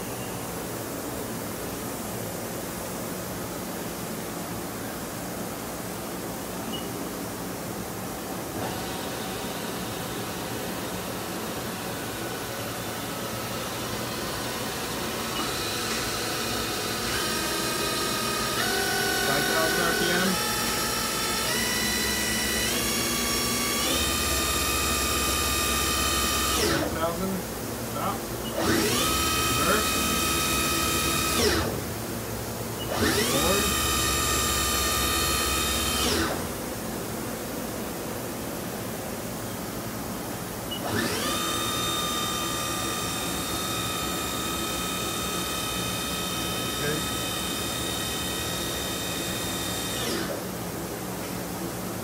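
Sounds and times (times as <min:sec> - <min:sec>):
machine spindle whine rising in pitch: 0:14.4 - 0:26.8, 0:40.8 - 0:50.4.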